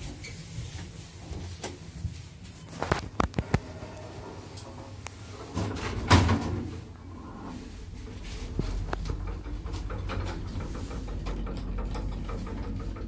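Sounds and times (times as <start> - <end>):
elevator doors sliding shut: 3.4 - 13.0.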